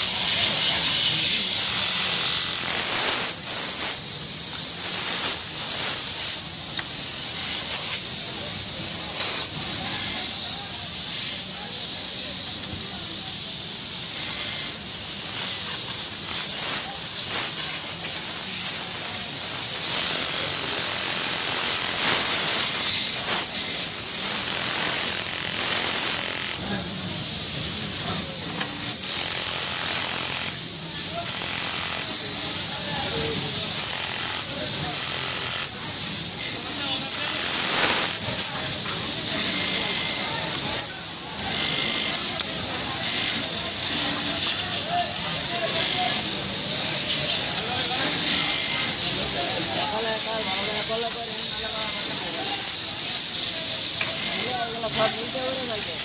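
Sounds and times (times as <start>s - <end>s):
constant hiss: 0.0s - 56.0s
industrial sewing machine running: 13.8s - 50.9s.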